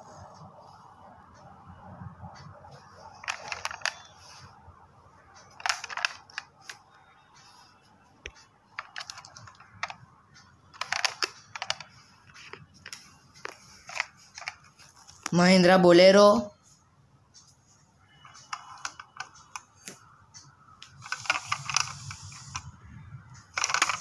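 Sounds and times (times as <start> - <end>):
plastic toy car clicking and rattling: 3.1 - 4.1, 5.4 - 6.8, 8.2 - 10.0, 10.7 - 14.8, 18.2 - 20.0, 20.9 - 22.7, 23.4 - 24.0.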